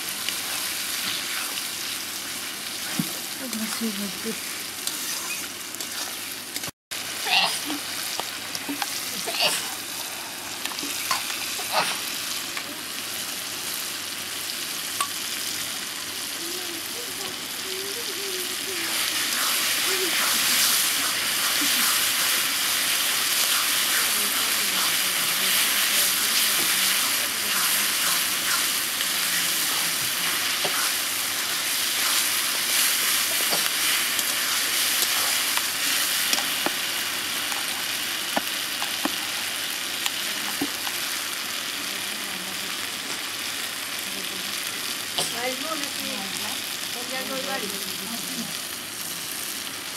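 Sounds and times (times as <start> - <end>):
food sizzling in hot oil: 0.0 - 49.9
stirring in a pan: 18.8 - 41.1.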